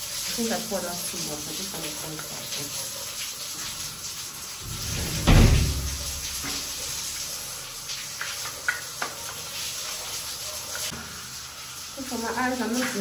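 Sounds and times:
dull heavy thump: 4.6s - 6.2s.

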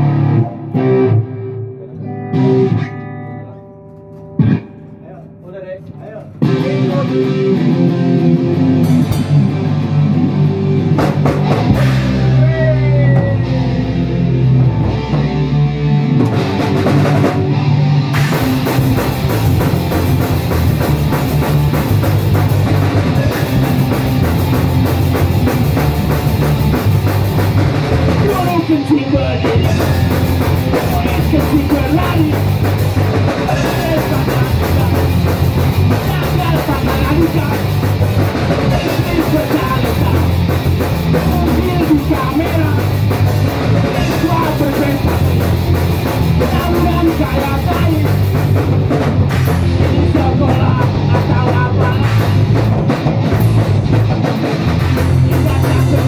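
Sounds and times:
electric guitars: 0.0s - 56.0s
drum kit and cymbals: 6.0s - 56.0s
man singing: 6.4s - 7.7s, 12.1s - 14.1s, 23.1s - 23.9s, 28.2s - 32.5s, 33.4s - 37.8s, 38.7s - 40.5s, 41.1s - 43.0s, 43.9s - 45.4s, 46.4s - 48.2s, 49.8s - 52.5s, 55.3s - 56.0s.

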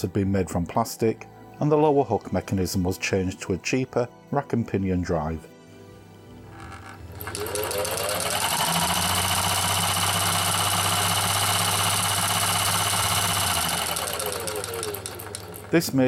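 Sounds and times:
electric sewing machine running: 6.5s - 16.0s.

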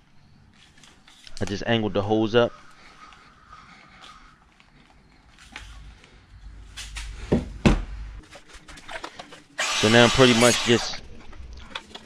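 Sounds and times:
plastic hose handling noise: 4.8s - 9.6s
low rumble: 5.8s - 8.2s.

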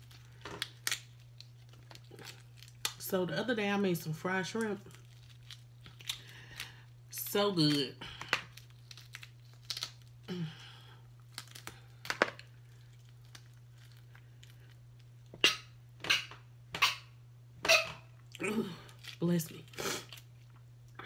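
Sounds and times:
lobster shell cracking: 0.0s - 3.0s, 4.6s - 6.8s, 7.6s - 10.3s, 11.2s - 15.1s.

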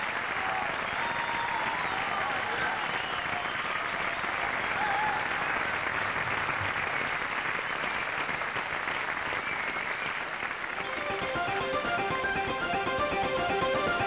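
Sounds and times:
audience applauding and cheering: 0.0s - 14.0s
whistle from audience: 0.9s - 4.2s, 9.3s - 10.3s
guitar music: 10.8s - 14.0s.

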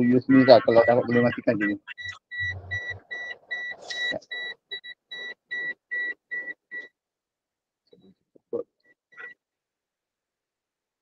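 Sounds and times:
rapid electronic beeping: 0.0s - 6.9s.

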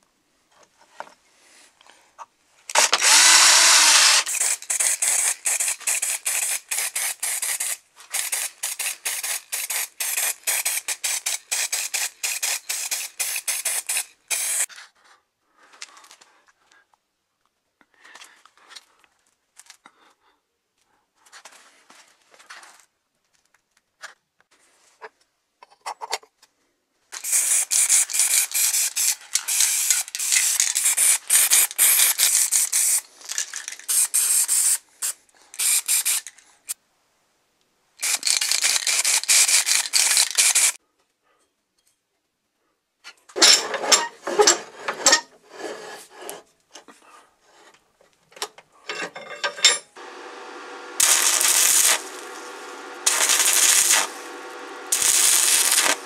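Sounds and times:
spray paint can hissing: 2.8s - 14.7s, 27.2s - 36.3s, 38.0s - 40.8s, 50.0s - 56.0s
quick clicks and rattles: 27.2s - 34.3s, 38.0s - 40.8s
steady motor hum: 50.0s - 56.0s.

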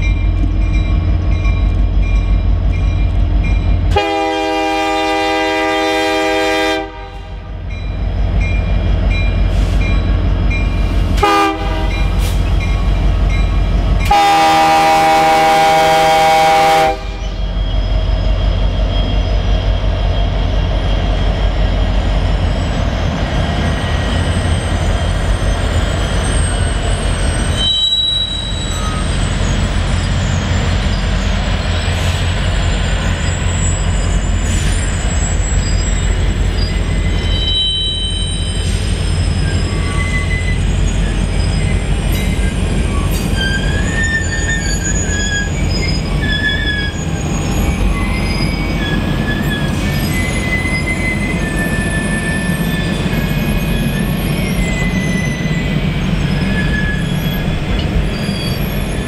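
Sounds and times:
train rumbling past: 0.0s - 59.0s
locomotive horn blasts: 3.9s - 7.6s, 11.2s - 12.2s, 14.0s - 17.2s
high wheel squeal: 17.1s - 59.0s.

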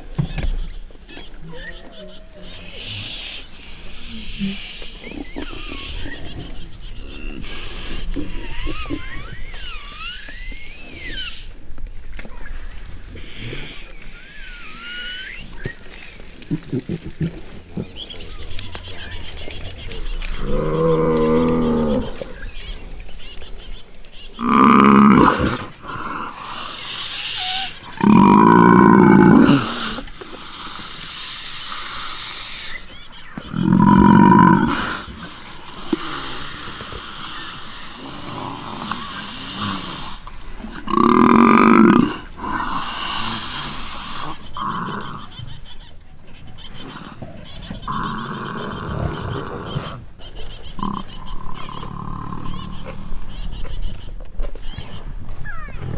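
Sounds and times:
lions growling: 16.4s - 22.7s, 24.4s - 30.2s, 33.4s - 45.3s, 46.8s - 50.2s, 50.8s - 53.2s.

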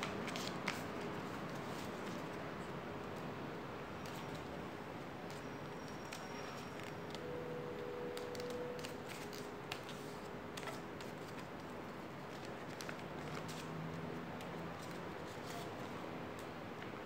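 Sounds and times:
paper being folded and creased: 0.0s - 2.3s, 8.1s - 14.0s, 14.7s - 15.9s.

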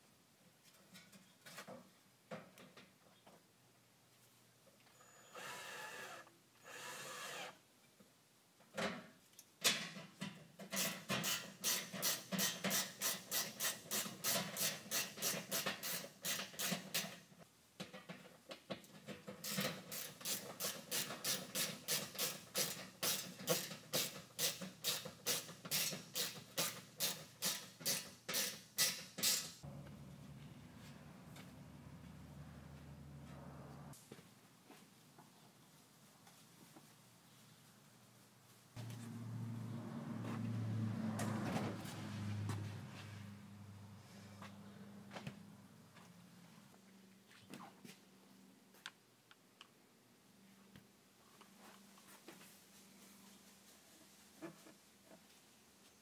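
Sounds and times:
cordless drill running: 5.0s - 7.6s.

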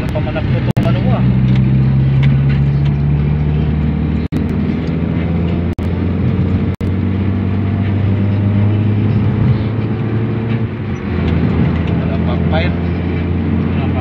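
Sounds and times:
car engine droning: 0.0s - 14.0s.

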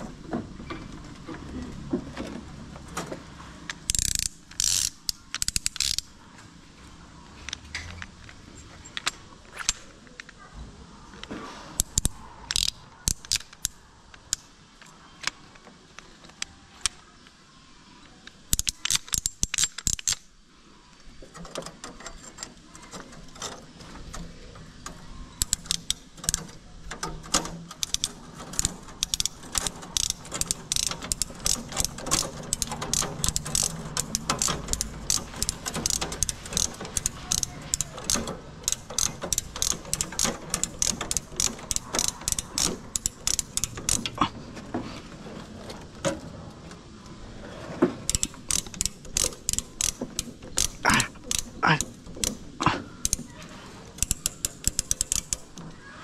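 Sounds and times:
ratchet clicking: 3.7s - 6.1s, 11.8s - 14.5s, 18.5s - 20.3s, 21.3s - 44.2s, 48.1s - 55.6s.

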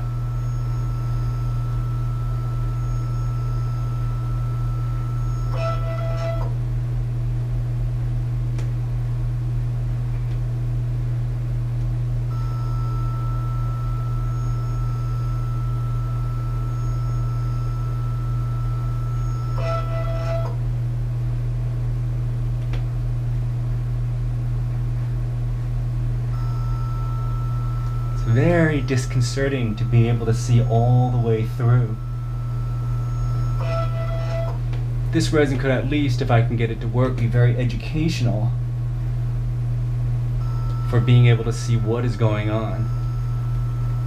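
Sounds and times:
motor whine: 0.0s - 6.7s, 12.2s - 20.8s, 26.2s - 38.5s, 40.0s - 44.0s
printer low hum: 0.0s - 44.0s.

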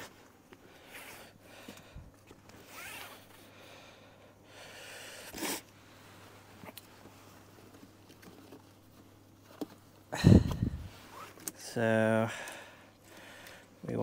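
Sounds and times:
strap webbing rustling and scraping: 0.0s - 3.5s, 5.3s - 11.7s.

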